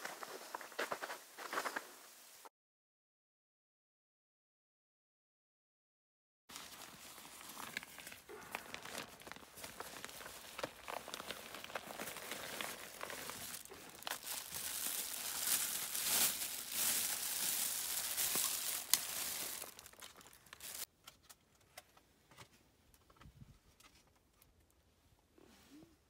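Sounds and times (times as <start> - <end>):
fabric rustling: 6.5 - 20.9
plastic bag crinkling: 6.5 - 20.9.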